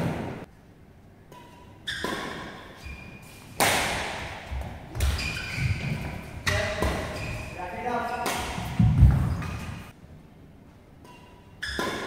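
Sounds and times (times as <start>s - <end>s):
shoes squeaking on court: 1.4s - 3.6s, 4.4s - 9.9s, 11.1s - 12.0s
rackets striking shuttlecock: 3.5s - 7.4s, 8.1s - 9.9s, 11.0s - 12.0s.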